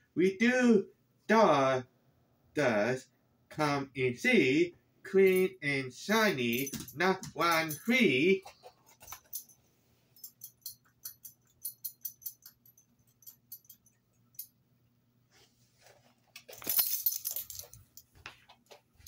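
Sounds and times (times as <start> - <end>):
dog collar tags jingling: 6.4 - 9.6, 10.2 - 14.6, 16.4 - 18.2.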